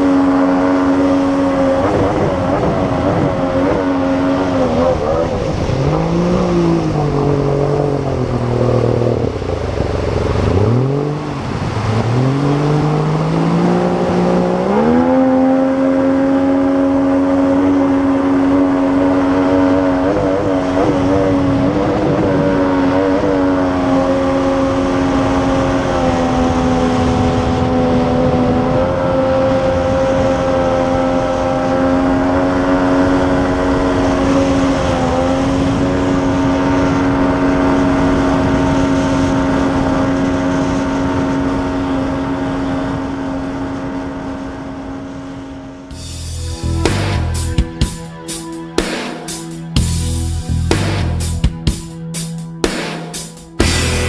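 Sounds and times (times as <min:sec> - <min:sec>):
rushing water: 0:00.0 - 0:44.9
boat motor running: 0:00.0 - 0:54.0.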